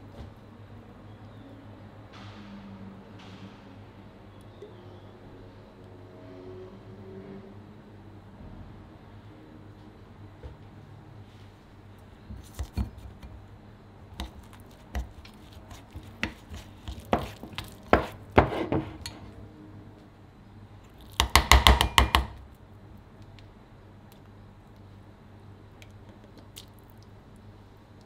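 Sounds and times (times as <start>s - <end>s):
spoon scraping paste in bowl: 14.2s - 19.2s.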